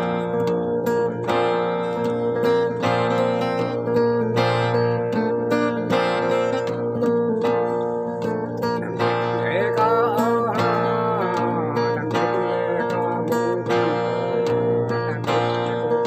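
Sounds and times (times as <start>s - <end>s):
acoustic guitar strumming: 0.0s - 16.0s
man singing: 8.5s - 16.0s.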